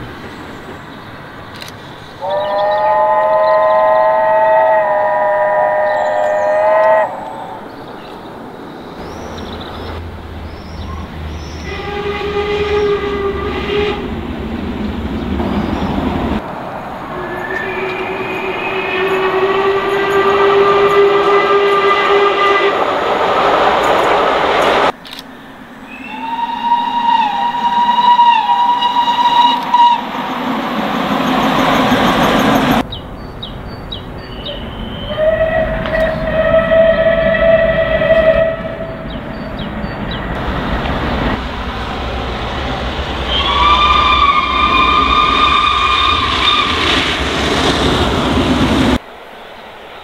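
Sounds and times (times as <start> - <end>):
passing train rumble: 0.0 - 50.0
steam locomotive whistles: 2.2 - 7.6, 11.4 - 14.2, 17.1 - 24.9, 25.9 - 32.8, 34.4 - 39.7, 42.3 - 49.0.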